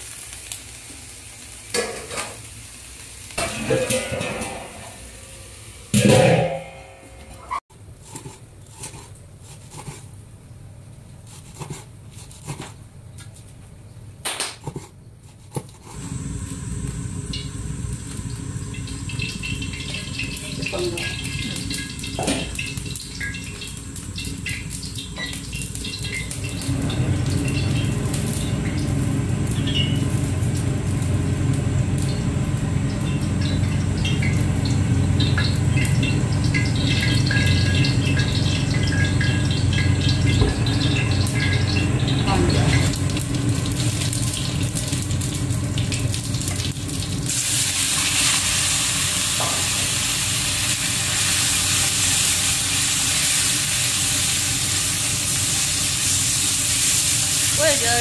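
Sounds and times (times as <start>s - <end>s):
oil crackling and popping: 0.0s - 3.4s, 15.6s - 58.0s
gas burner running: 0.0s - 7.6s, 15.8s - 58.0s.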